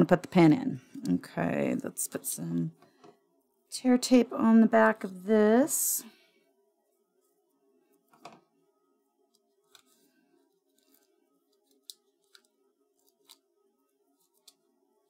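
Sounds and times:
tape crinkling: 0:09.4 - 0:13.5.

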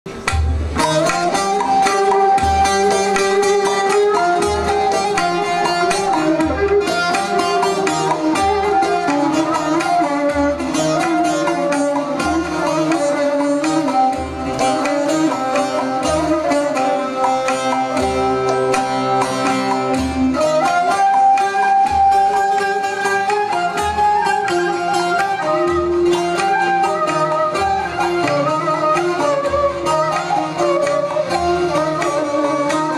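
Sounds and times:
held melody line: 0:00.1 - 0:32.9
long-necked lutes strummed: 0:00.1 - 0:32.9.

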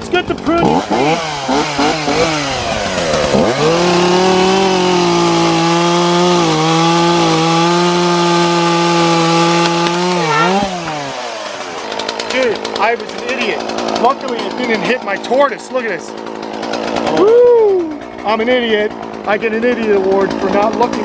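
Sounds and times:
chainsaw cutting branch: 0:00.0 - 0:21.0
branch falling: 0:08.6 - 0:14.5.

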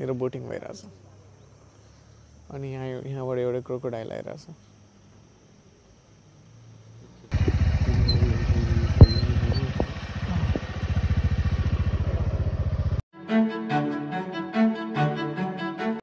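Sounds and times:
motorcycle engine pulsing: 0:07.3 - 0:13.0
music: 0:13.1 - 0:16.0.

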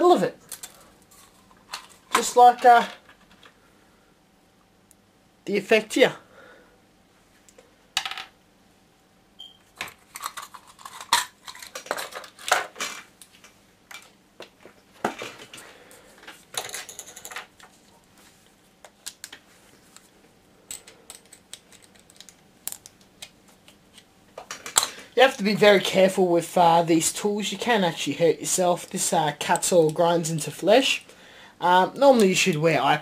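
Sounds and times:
tools and plastic parts clattering: 0:00.4 - 0:03.6, 0:09.8 - 0:13.1, 0:13.9 - 0:15.6, 0:16.2 - 0:17.8, 0:20.7 - 0:22.9.

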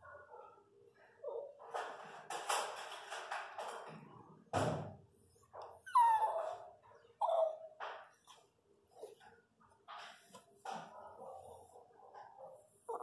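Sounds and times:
dog whining: 0:05.7 - 0:07.8
rustling and scratching on mat: 0:07.8 - 0:13.0.

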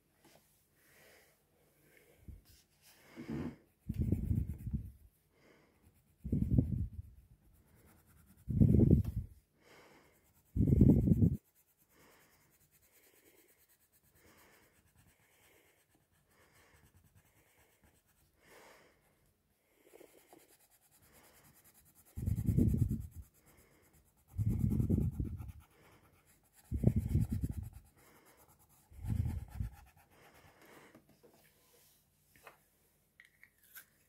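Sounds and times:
pencil scratching on paper: 0:03.8 - 0:05.0, 0:05.8 - 0:09.1, 0:10.2 - 0:18.3, 0:19.9 - 0:30.6.

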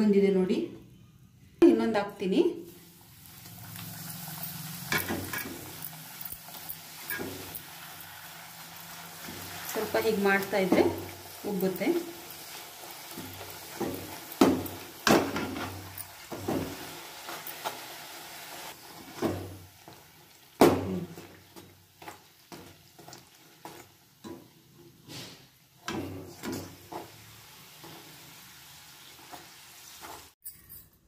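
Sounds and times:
oil sizzling: 0:02.6 - 0:30.4
metal spatula tapping and scraping pan: 0:04.9 - 0:06.3, 0:07.0 - 0:07.6, 0:25.8 - 0:27.2.

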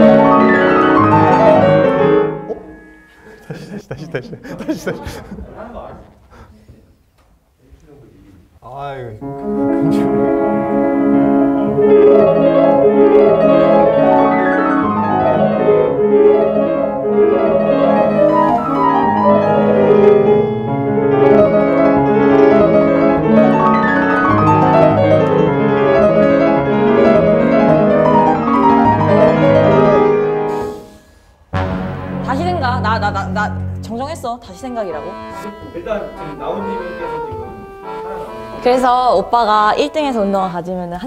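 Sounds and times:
fast piano runs: 0:00.0 - 0:03.3, 0:10.1 - 0:30.5.

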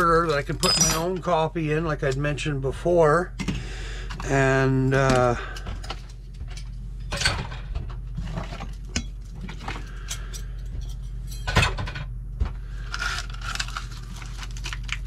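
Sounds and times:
steady low hum: 0:00.0 - 0:15.0
plastic packaging rustling: 0:12.8 - 0:15.0.

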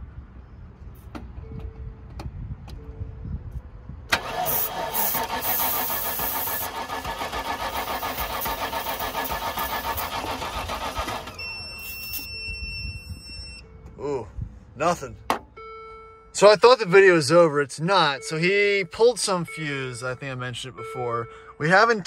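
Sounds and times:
engine cranking by starter: 0:04.1 - 0:11.5.

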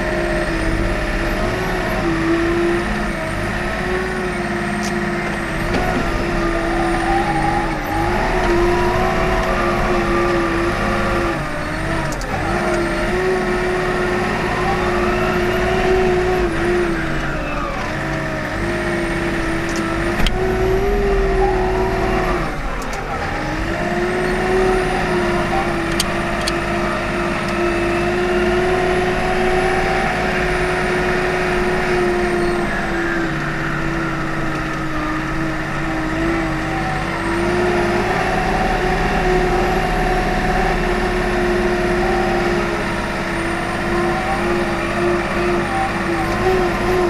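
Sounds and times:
diesel engine running: 0:00.0 - 0:47.0.

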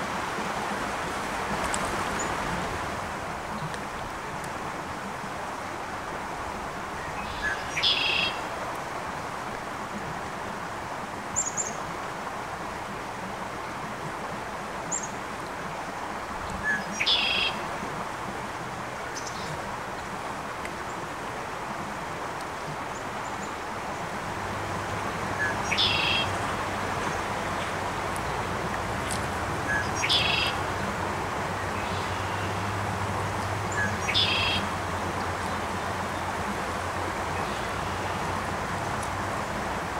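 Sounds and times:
flowing creek: 0:00.0 - 0:39.9
songbird singing phrase: 0:07.0 - 0:08.4, 0:16.6 - 0:17.6, 0:25.3 - 0:31.0, 0:31.6 - 0:32.7, 0:33.6 - 0:36.3, 0:37.3 - 0:39.2.

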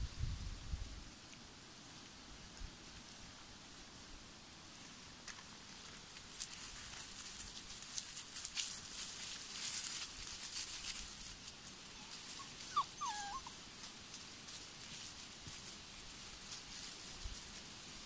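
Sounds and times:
dry leaves and twigs crackling: 0:04.7 - 0:18.0
puppy whimpering: 0:11.9 - 0:13.6.

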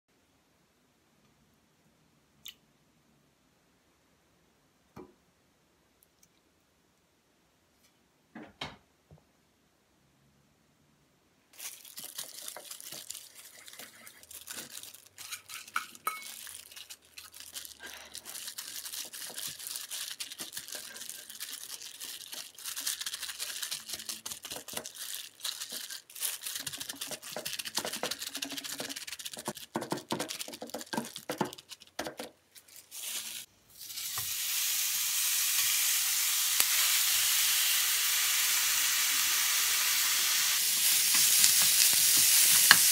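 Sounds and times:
beef sizzling in frying pan: 0:32.9 - 0:42.9.

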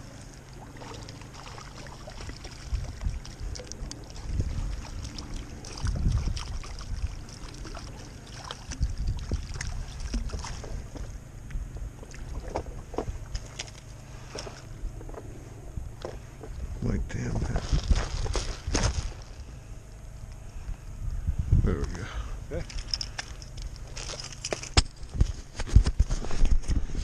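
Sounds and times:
wind buffeting microphone: 0:02.0 - 0:13.3, 0:14.7 - 0:19.6, 0:20.5 - 0:22.7, 0:25.0 - 0:27.0
light clicks and rustles: 0:22.6 - 0:27.0.

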